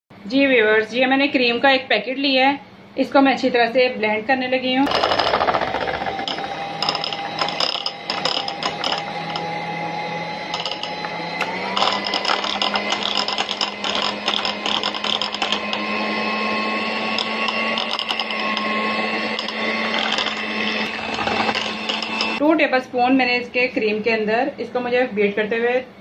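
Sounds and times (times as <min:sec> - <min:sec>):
clicks and rattles: 0:04.9 - 0:09.4, 0:11.7 - 0:15.8, 0:19.4 - 0:22.4
electric hand mixer whipping cream: 0:04.9 - 0:22.4.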